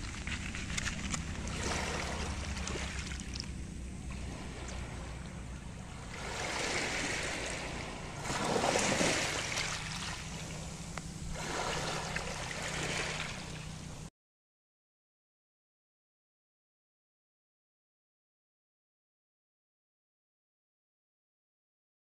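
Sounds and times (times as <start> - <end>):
waves washing onto pebble beach: 0.0 - 13.8
steady low hum: 0.0 - 14.1.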